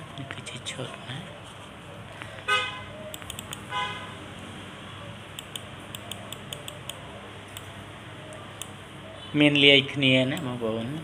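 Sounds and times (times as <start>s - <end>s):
vehicle horn toots: 2.5s - 2.9s, 3.7s - 4.2s.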